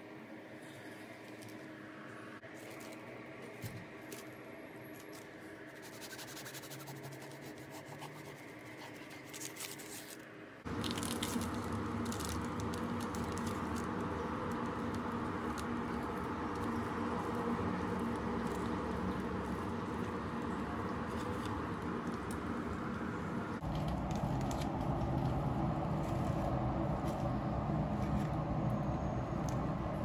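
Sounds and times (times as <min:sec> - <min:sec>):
bread crust crackling: 0:08.5 - 0:27.0.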